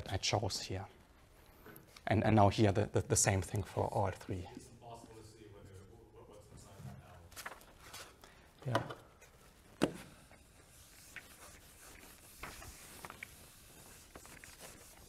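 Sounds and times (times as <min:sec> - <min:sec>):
eraser rubbing whiteboard: 0:10.1 - 0:15.0.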